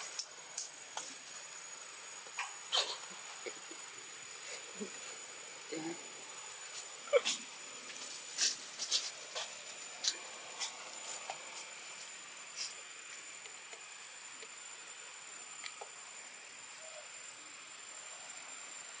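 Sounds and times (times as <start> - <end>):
steady high hiss: 0.0 - 19.0.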